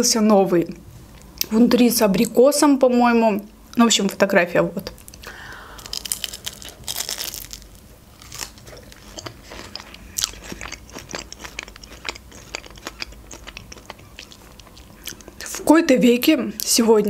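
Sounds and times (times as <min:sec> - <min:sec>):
crunching pastry: 0:04.9 - 0:15.7.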